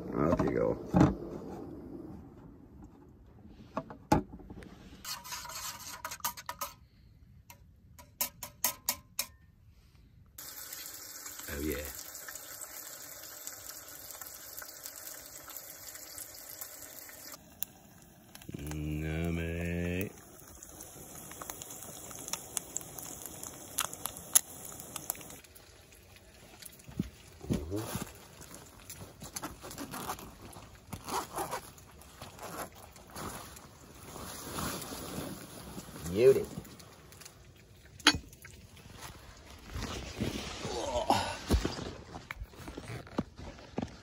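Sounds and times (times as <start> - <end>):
bacon sizzling in a frying pan: 10.4 - 28.4
tent fabric rustling: 27.6 - 37.0, 38.8 - 44.0
tent zipper being pulled: 29.4 - 33.3, 34.0 - 36.4, 42.6 - 43.3.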